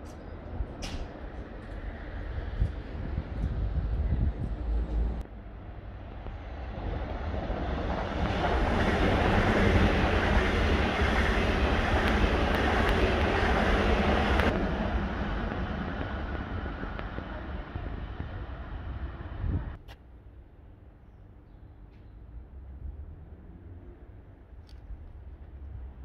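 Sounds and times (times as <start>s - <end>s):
wind buffeting microphone: 0.0s - 5.2s, 6.0s - 19.8s
train wheels rumbling on rails: 0.0s - 19.8s.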